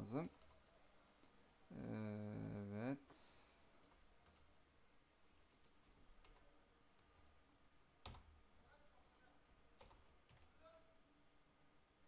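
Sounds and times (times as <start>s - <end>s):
computer keyboard clicks: 5.5s - 6.4s, 9.8s - 10.5s.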